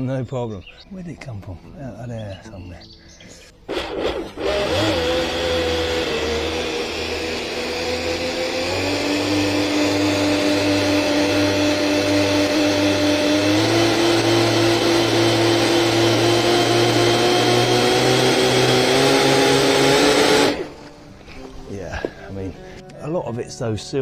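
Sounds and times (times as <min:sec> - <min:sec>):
electric motors whining: 0:03.6 - 0:21.2.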